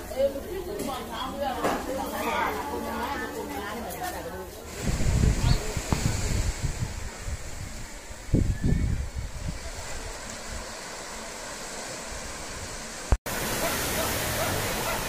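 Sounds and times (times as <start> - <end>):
sea surf washing on beach: 4.5 - 15.0
wind on microphone: 4.7 - 11.2.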